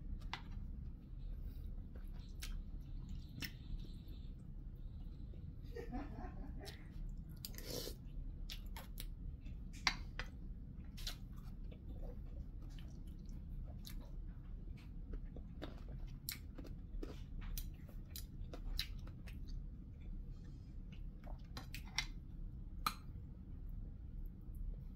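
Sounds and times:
person chewing food: 0.0s - 5.6s, 6.6s - 23.3s.

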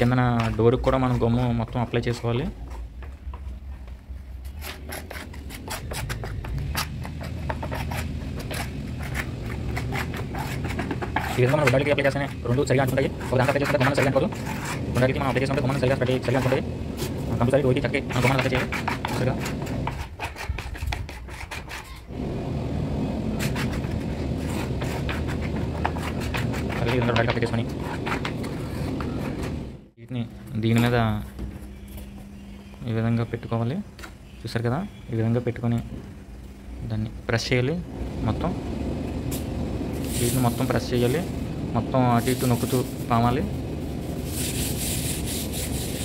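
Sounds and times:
wood scraping glue on plywood: 4.5s - 22.0s, 23.3s - 29.7s
steady low hum: 35.8s - 46.0s.

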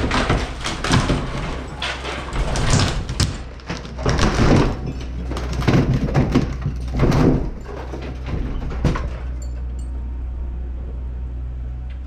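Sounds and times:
wood and masonry creaking and grinding: 0.0s - 10.1s
low engine drone: 8.3s - 12.0s.

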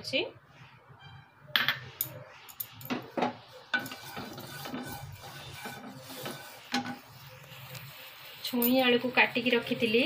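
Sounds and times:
wooden spatula scraping a pan: 3.1s - 10.0s.

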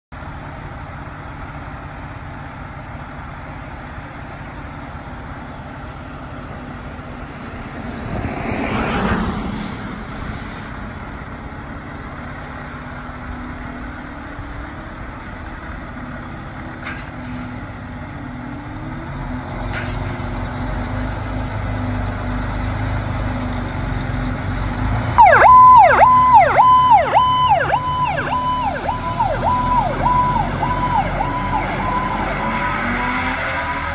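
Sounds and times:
diesel engine running: 9.5s - 33.9s
electronic siren sweeping: 25.2s - 33.9s.

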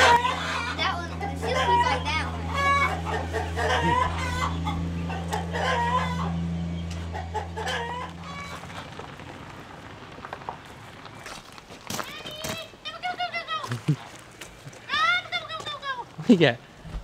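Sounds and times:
chickens clucking: 0.0s - 9.0s
steady low hum: 0.0s - 11.7s.

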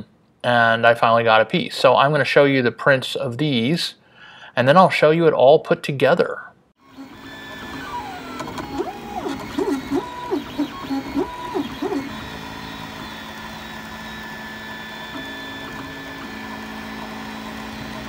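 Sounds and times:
printer stepper motors whining: 6.8s - 18.0s.

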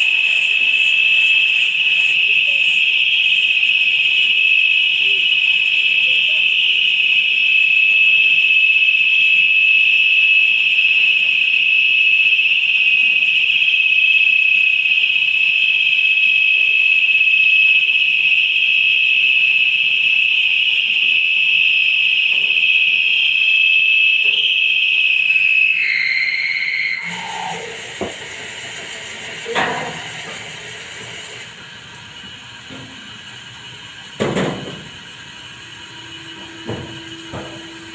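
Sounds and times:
high-pitched whistling hiss of venting gas: 0.0s - 5.2s, 24.4s - 37.9s.

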